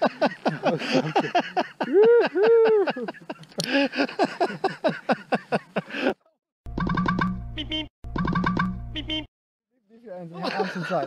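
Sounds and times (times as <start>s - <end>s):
person laughing heartily: 0.0s - 6.4s, 10.4s - 11.0s.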